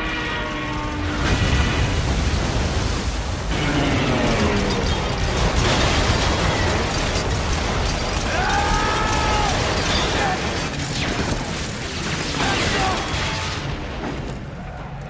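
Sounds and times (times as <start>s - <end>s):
explosions: 0.7s - 14.9s
man crying out: 8.3s - 9.7s.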